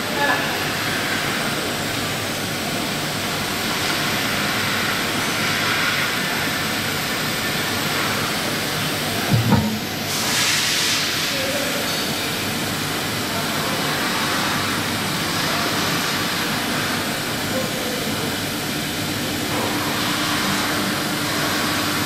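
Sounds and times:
cnc machine hissing and whining: 0.1s - 22.0s
brief knock: 9.3s - 10.0s.

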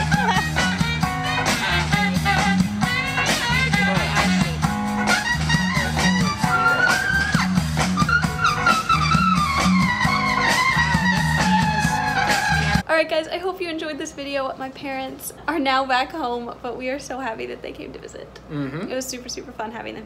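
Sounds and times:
live band guitar music: 0.0s - 12.8s.

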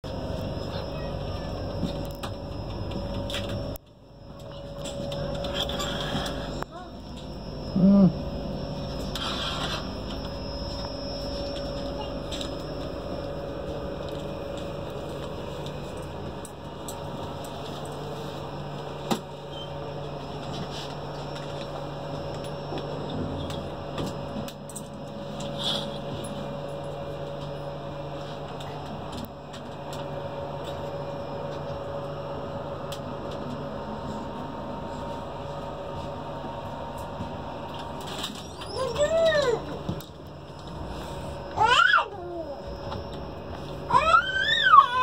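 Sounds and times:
train coach hum and rushing: 0.0s - 45.0s.

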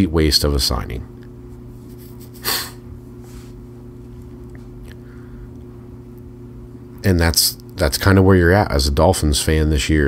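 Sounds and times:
man talking: 0.0s - 1.2s, 7.0s - 10.0s
steady low hum: 0.0s - 10.0s.

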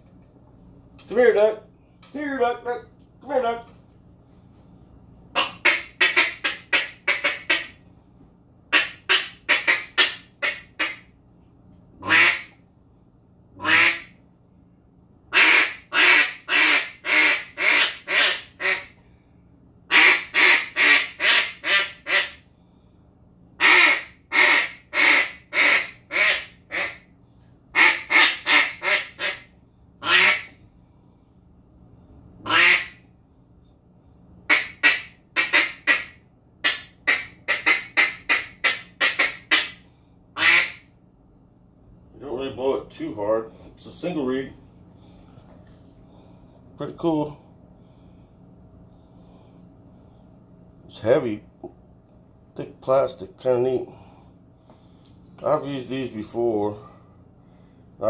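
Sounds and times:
duck call quacks: 5.4s - 7.8s, 8.7s - 11.1s, 12.0s - 12.6s, 13.6s - 14.1s, 15.3s - 19.0s, 19.9s - 22.4s, 23.6s - 27.0s, 27.8s - 30.6s, 32.4s - 33.0s, 34.5s - 39.8s, 40.4s - 40.9s.

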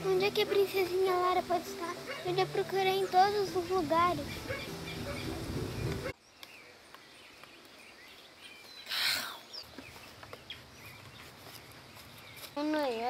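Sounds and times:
rustling noise: 9.6s - 13.0s.

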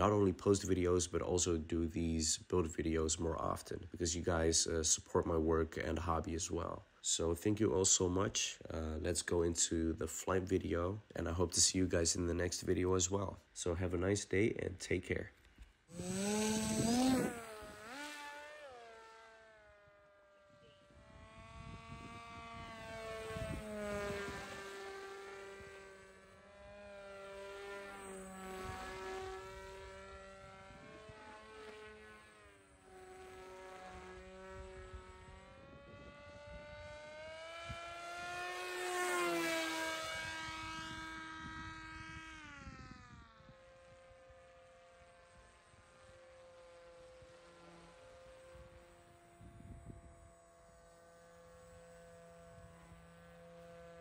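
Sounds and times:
electric motor and propeller whining: 15.4s - 54.0s.

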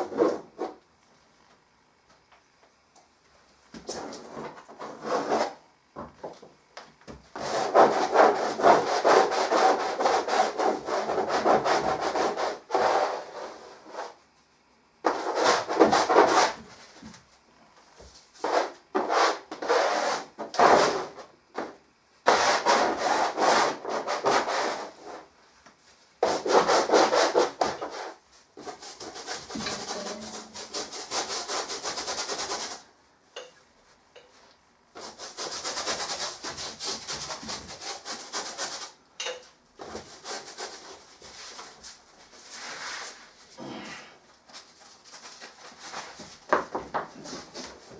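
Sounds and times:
hand scrubbing paint on canvas: 7.4s - 14.2s, 26.2s - 32.8s, 35.0s - 39.0s, 39.8s - 43.4s.

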